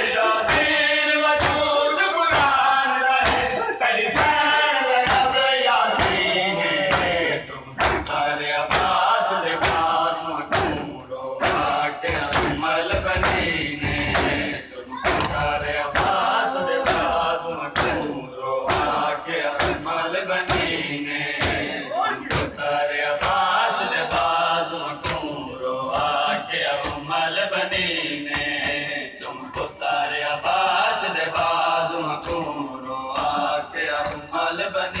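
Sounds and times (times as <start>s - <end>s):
men chanting a lament: 0.0s - 35.0s
hands slapping chests: 1.4s - 1.6s, 3.2s - 3.6s, 5.0s - 5.3s, 6.8s - 9.0s, 9.6s - 13.5s, 16.8s - 18.1s.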